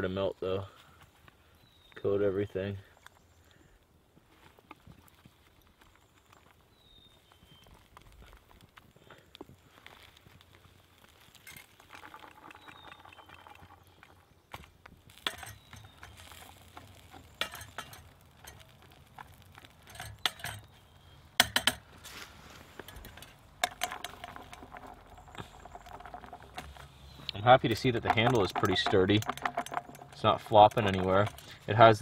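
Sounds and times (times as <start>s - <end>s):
wooden stick scraping metal pan: 15.1s - 32.0s
metallic clinks of pan handle: 19.8s - 20.7s.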